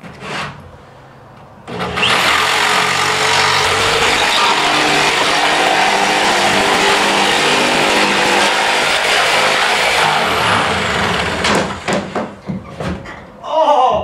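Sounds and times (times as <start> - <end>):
jigsaw cutting plywood: 1.7 - 12.2.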